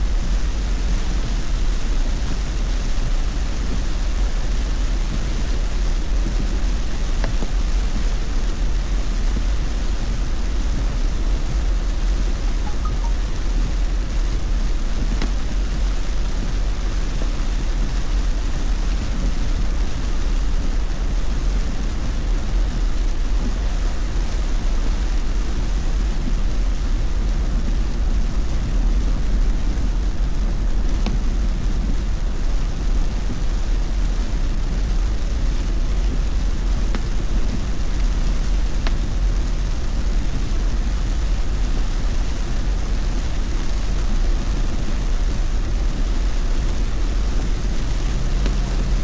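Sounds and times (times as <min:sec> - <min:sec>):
hiss of rain and spray: 0:00.0 - 0:49.0
tyre and road rumble: 0:27.4 - 0:49.0.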